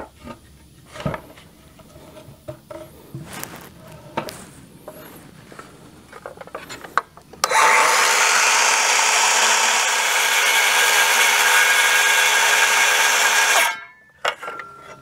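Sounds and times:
circular saw cutting timber: 7.4 - 13.9.

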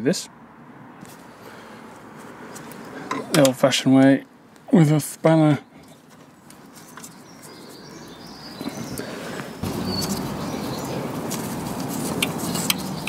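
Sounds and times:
rustling and handling noise: 1.0 - 3.5, 5.9 - 7.8, 8.6 - 13.0.

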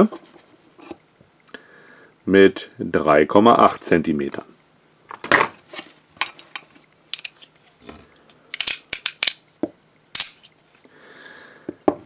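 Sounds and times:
handcuff clicks and knocks: 8.6 - 9.4.

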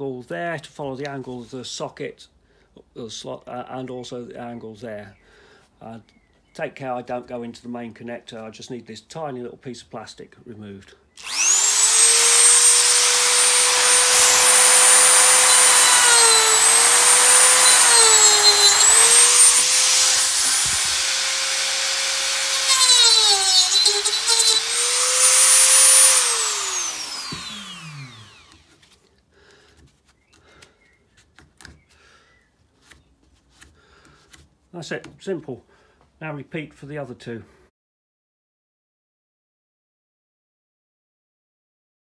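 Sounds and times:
rotary tool whining: 11.2 - 29.0.

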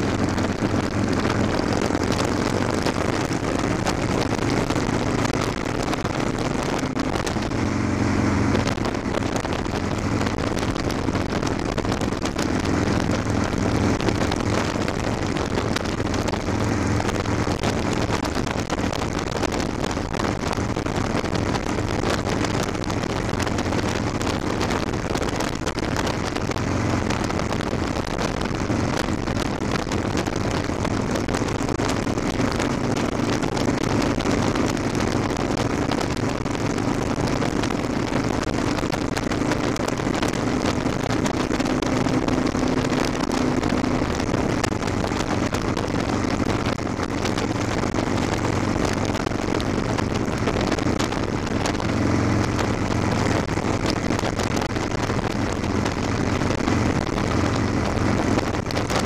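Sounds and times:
motorcycle engine running: 0.0 - 59.0
wind rush on microphone: 0.0 - 59.0.

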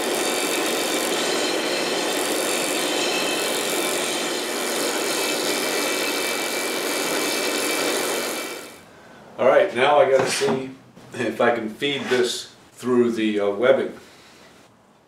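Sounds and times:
disc sander running with whine: 0.0 - 8.8.

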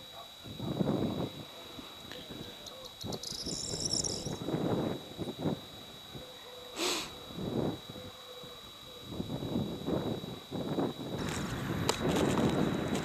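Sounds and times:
steady high-pitched whine: 0.0 - 13.0
low rustling wind gusts: 0.5 - 6.2, 7.2 - 8.1, 9.1 - 13.0
high chirping: 2.6 - 4.4
short hiss: 6.8 - 7.2.

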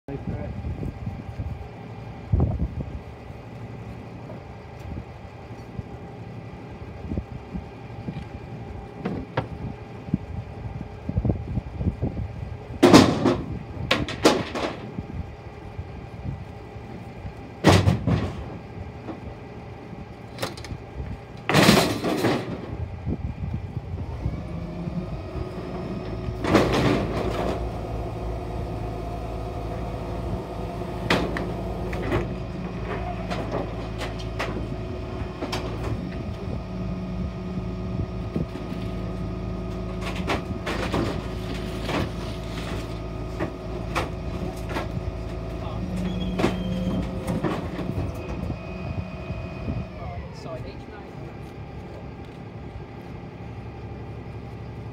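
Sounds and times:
hydraulic whine: 0.8 - 54.9
wooden crashes and cracks: 12.8 - 14.9, 26.4 - 27.6, 40.0 - 45.0
refuse truck engine idling: 27.0 - 54.9.

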